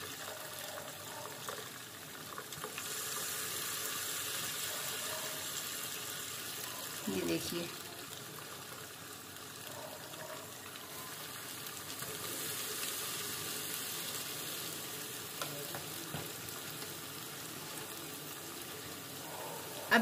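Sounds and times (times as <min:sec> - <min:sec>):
hot oil sizzling and bubbling: 0:00.0 - 0:20.0.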